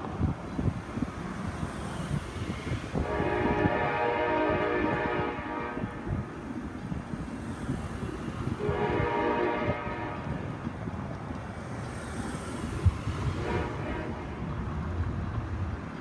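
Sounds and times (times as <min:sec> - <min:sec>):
locomotive horn blasts: 0:03.0 - 0:06.3, 0:08.6 - 0:10.5, 0:13.4 - 0:14.4.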